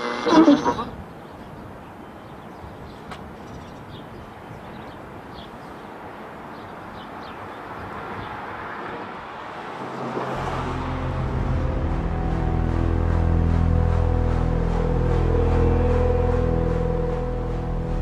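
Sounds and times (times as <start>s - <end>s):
vehicle traffic rumble: 4.2s - 18.0s
low dark music drone: 9.9s - 18.0s.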